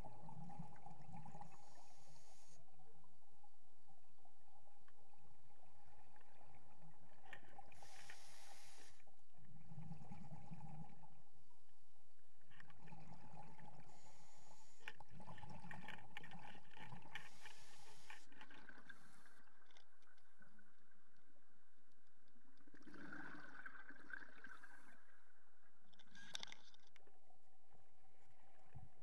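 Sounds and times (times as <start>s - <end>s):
steady hiss of water: 1.4s - 2.7s, 7.7s - 9.1s, 13.7s - 14.9s, 17.1s - 19.4s.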